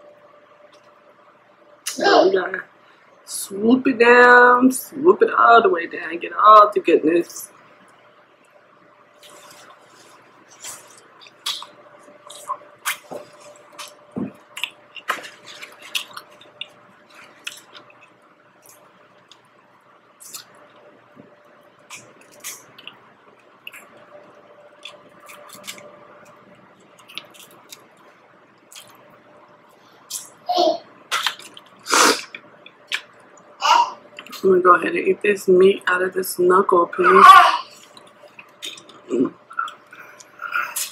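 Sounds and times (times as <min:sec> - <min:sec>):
wet chewing: 0:09.2 - 0:19.5, 0:21.8 - 0:24.1, 0:24.7 - 0:28.0, 0:28.6 - 0:29.1, 0:31.1 - 0:33.5, 0:37.8 - 0:40.9.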